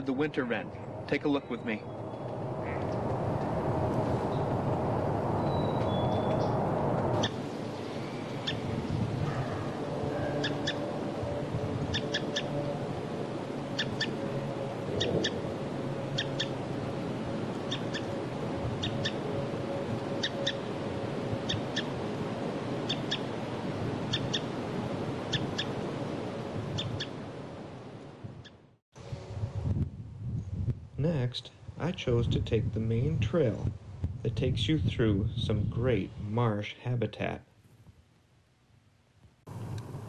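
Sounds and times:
bird chip calls: 0:07.2 - 0:08.7, 0:09.3 - 0:10.8, 0:11.9 - 0:12.6, 0:13.8 - 0:14.2, 0:16.2 - 0:16.5, 0:17.7 - 0:18.1, 0:18.8 - 0:19.2, 0:20.2 - 0:20.7, 0:21.4 - 0:21.9, 0:22.9 - 0:23.3, 0:24.1 - 0:24.5, 0:25.3 - 0:25.8.

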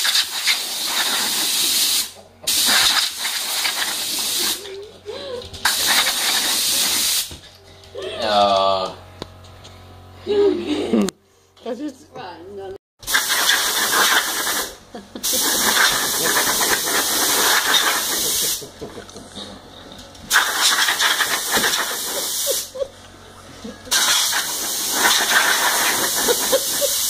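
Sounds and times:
compressed air hissing: 0:00.0 - 0:04.7, 0:05.6 - 0:07.3, 0:13.0 - 0:18.7, 0:20.3 - 0:22.8, 0:23.9 - 0:27.0.

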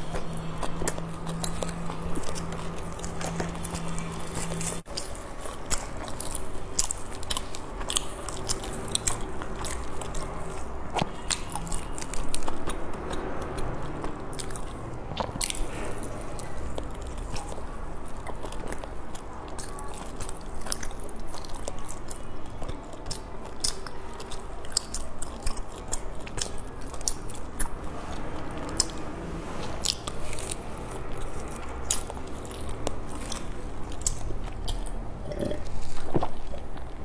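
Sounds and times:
wet chewing with mouth clicks: 0:00.0 - 0:37.0
gulping a drink: 0:34.6 - 0:36.8.

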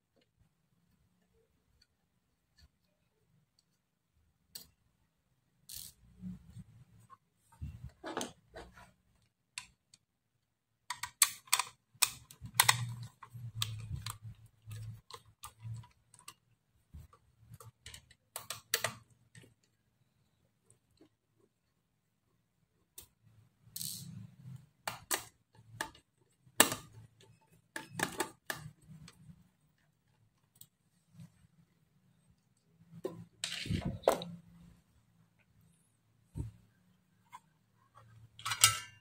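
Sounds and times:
screwdriver clicks and scrapes: 0:05.7 - 0:06.0.

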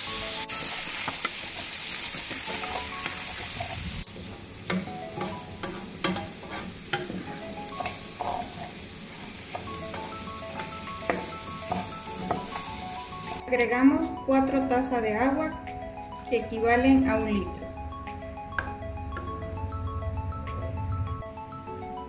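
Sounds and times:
rice sizzling in hot oil: 0:00.0 - 0:13.4
wooden spoon scraping pot: 0:05.6 - 0:07.0.

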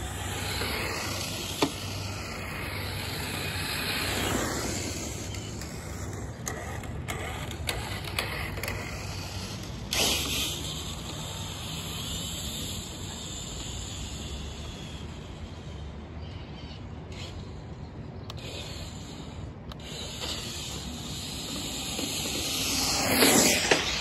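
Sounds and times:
rc truck motor whine: 0:00.0 - 0:24.0.

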